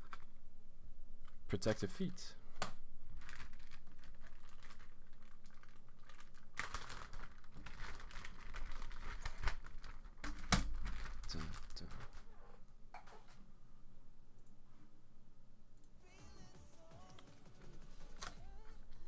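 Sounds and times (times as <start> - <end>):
plastic bag crinkling: 3.1 - 12.3.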